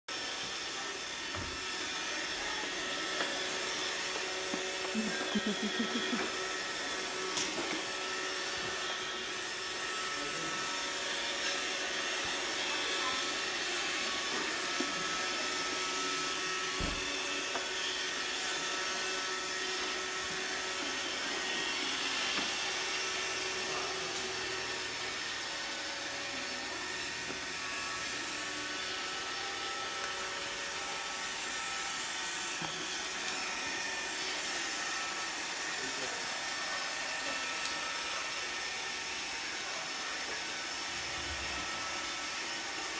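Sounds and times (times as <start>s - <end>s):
robot vacuum whirring: 0.1s - 42.9s.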